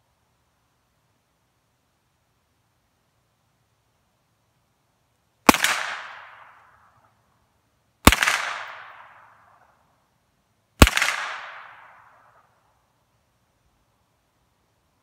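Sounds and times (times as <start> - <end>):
gunshots with echo: 8.1 - 9.1, 10.8 - 11.9.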